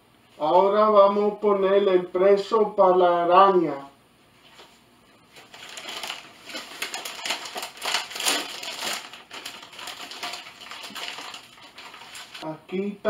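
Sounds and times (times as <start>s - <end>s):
plastic snack bag crinkling: 5.3s - 12.4s.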